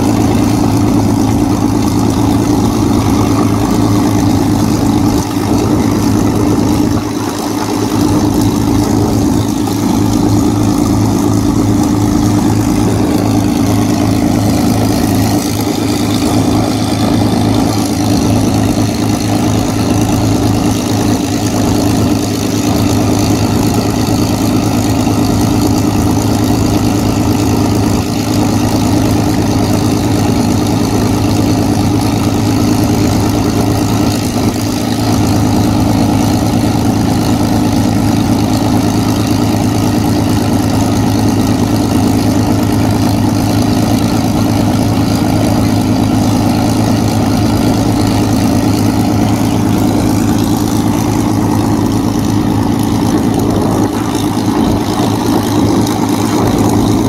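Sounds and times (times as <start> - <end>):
aircraft piston engine idling: 0.0 - 57.0.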